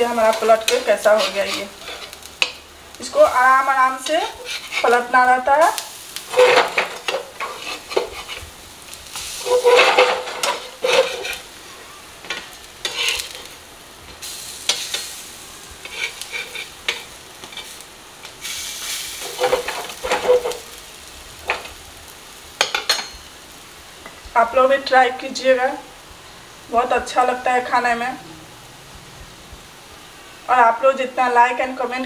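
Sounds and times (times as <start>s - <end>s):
paste frying in oil: 0.0s - 28.2s
spatula scraping and tapping pan: 0.2s - 2.6s, 4.0s - 5.1s, 6.3s - 8.5s, 9.2s - 11.5s, 12.2s - 13.5s, 14.1s - 15.1s, 15.8s - 18.4s, 19.2s - 20.8s.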